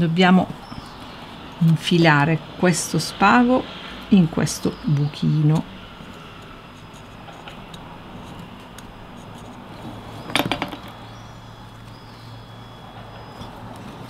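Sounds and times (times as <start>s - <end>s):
rod clattering on wooden table: 10.3s - 10.9s.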